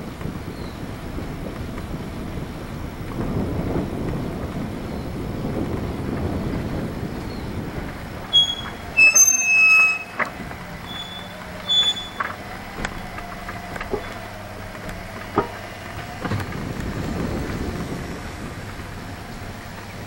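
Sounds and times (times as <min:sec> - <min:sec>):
golf cart humming: 0:00.0 - 0:20.0
knocks and rattles from cart: 0:00.0 - 0:20.0
high-pitched squeal: 0:08.3 - 0:16.5.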